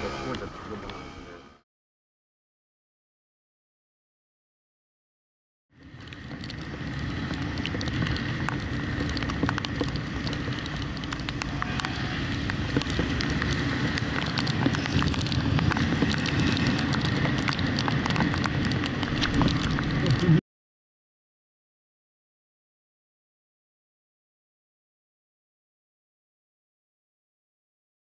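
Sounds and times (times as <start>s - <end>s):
faint high whine: 0.0s - 1.6s
scooter engine drone: 0.0s - 1.6s, 5.8s - 20.4s
raindrops ticking on camera: 5.8s - 20.4s
wind rush: 5.8s - 20.4s.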